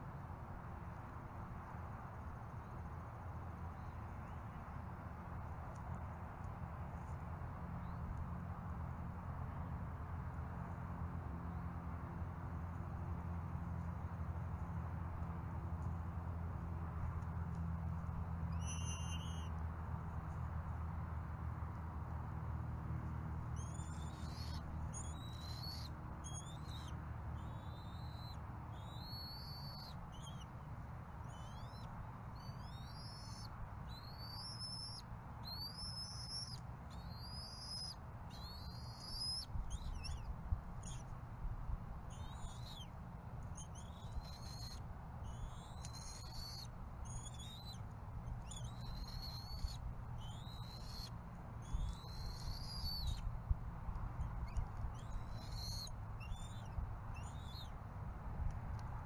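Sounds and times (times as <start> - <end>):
eaglet begging calls: 18.5 - 19.5, 23.6 - 30.4, 31.2 - 41.0, 42.1 - 42.9, 43.6 - 47.8, 48.4 - 53.2, 54.4 - 57.7.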